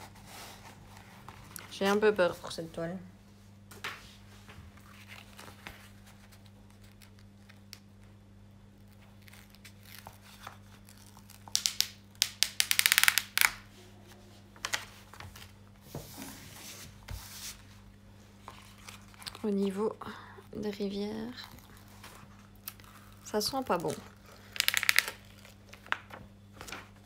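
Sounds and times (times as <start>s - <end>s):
plastic packaging crinkling and tearing: 4.9s - 8.0s, 8.7s - 13.6s, 18.5s - 19.8s, 21.1s - 27.0s.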